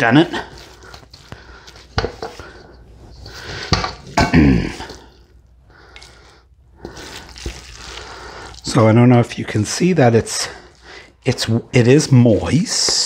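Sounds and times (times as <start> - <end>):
person making short vocal sound: 4.2 - 5.0.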